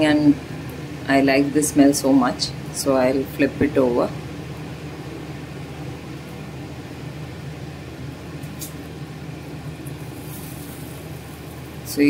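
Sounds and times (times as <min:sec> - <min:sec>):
low mechanical hum: 0:00.0 - 0:12.0
pancakes sizzling in butter: 0:09.8 - 0:11.9.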